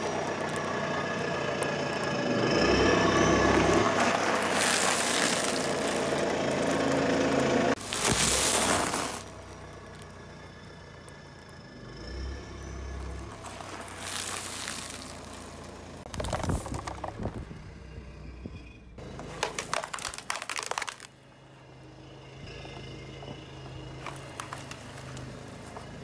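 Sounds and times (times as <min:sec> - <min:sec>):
foam trays cracking and squeaking: 0:00.0 - 0:01.4, 0:02.6 - 0:11.6, 0:12.2 - 0:17.6, 0:19.0 - 0:21.2, 0:23.2 - 0:26.0
balls crunching and crackling: 0:00.0 - 0:17.8, 0:19.0 - 0:21.2, 0:23.2 - 0:26.0
car tyre crushing objects: 0:00.0 - 0:18.4, 0:19.0 - 0:21.9, 0:22.5 - 0:26.0
plastic bag bursting with crunch: 0:03.9 - 0:07.0, 0:07.8 - 0:09.6, 0:13.4 - 0:17.3, 0:19.3 - 0:21.1.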